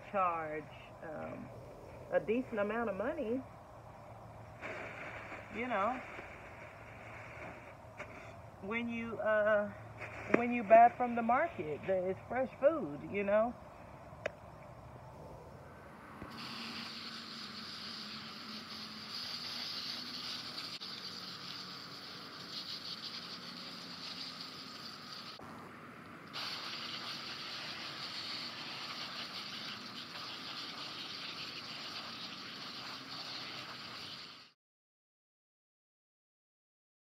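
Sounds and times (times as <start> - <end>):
hose spraying water on leaves: 4.5 - 12.6, 16.2 - 25.5, 26.2 - 34.6.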